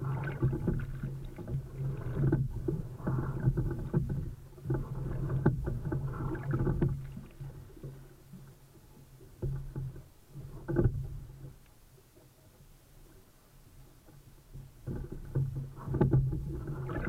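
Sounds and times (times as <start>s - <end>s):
oars working: 0.0s - 17.0s
water rushing along hull: 0.0s - 17.0s.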